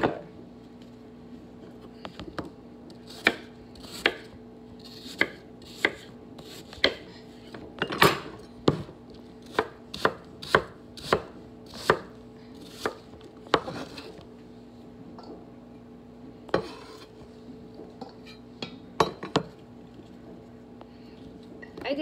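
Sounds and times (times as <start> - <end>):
faint steady hum: 0.0 - 22.0
knife chopping on wooden board: 2.4 - 7.1, 8.0 - 14.1.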